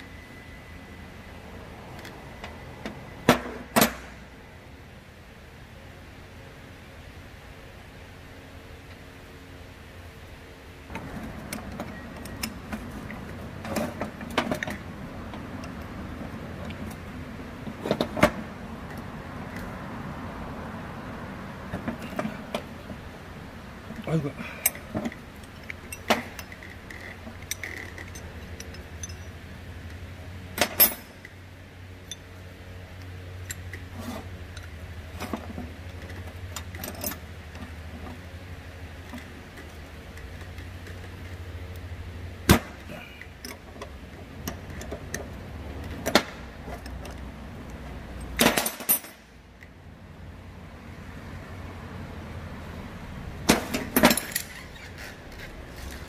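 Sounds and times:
metal tools clinking: 0:24.4 - 0:29.4, 0:30.6 - 0:31.3, 0:48.2 - 0:49.4, 0:53.7 - 0:55.2.

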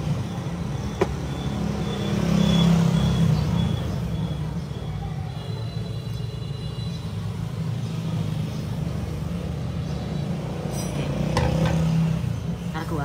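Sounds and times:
motor vehicle engine rumble: 0:07.2 - 0:12.8.

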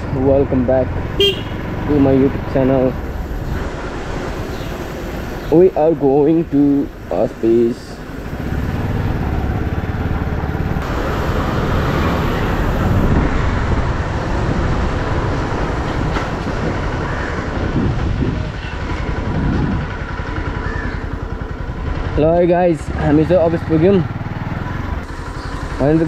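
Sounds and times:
motorcycle engine running: 0:00.0 - 0:26.0
wind noise on microphone: 0:12.4 - 0:20.2.

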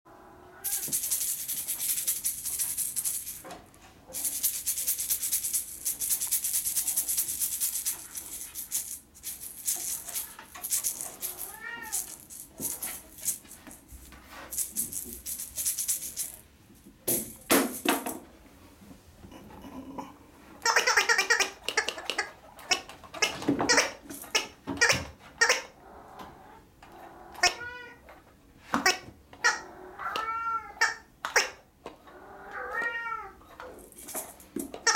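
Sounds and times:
kittens meowing: 0:00.4 - 0:00.9, 0:11.1 - 0:13.0
dry hissy rustling and rattling: 0:00.6 - 0:18.2, 0:33.6 - 0:34.9.

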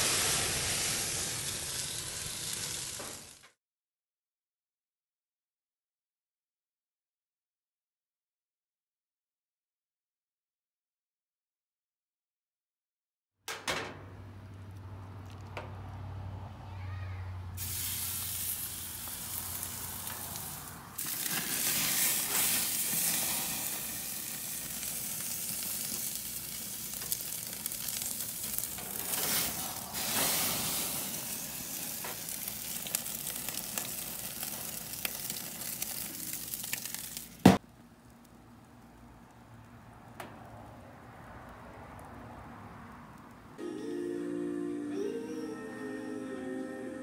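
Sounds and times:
steak sizzling in a pan: 0:00.0 - 0:03.4, 0:17.6 - 0:37.4.

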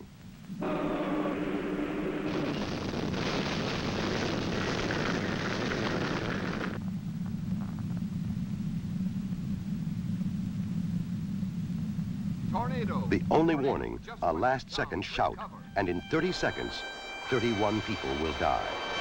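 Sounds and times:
steady low rumble: 0:00.0 - 0:19.0
loud roaring wind: 0:00.4 - 0:14.0.

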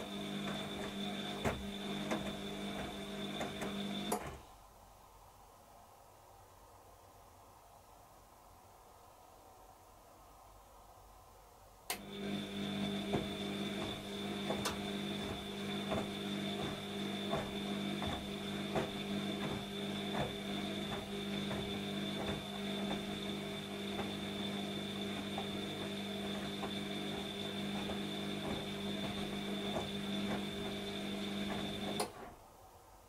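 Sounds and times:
washing machine motor hum: 0:00.0 - 0:04.5, 0:11.9 - 0:32.7
wet clothes knocking in drum: 0:13.1 - 0:23.1.

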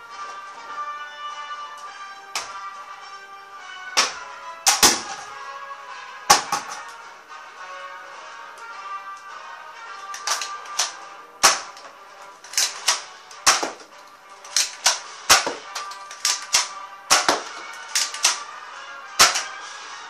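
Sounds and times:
background music: 0:00.0 - 0:20.0
toy blaster shots: 0:19.2 - 0:19.5.

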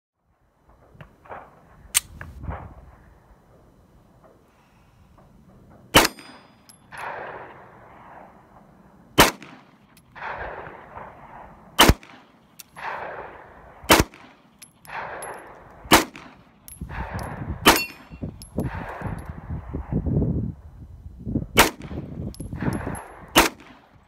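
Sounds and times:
pistol shots: 0:05.9 - 0:07.6, 0:09.2 - 0:11.2, 0:11.8 - 0:19.2, 0:21.6 - 0:22.0, 0:22.6 - 0:23.9
gunshot echo off hills: 0:05.9 - 0:08.6, 0:09.2 - 0:19.2.

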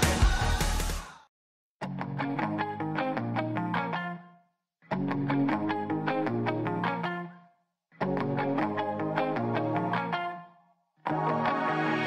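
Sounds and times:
pop song with heavy bass: 0:00.0 - 0:01.2.

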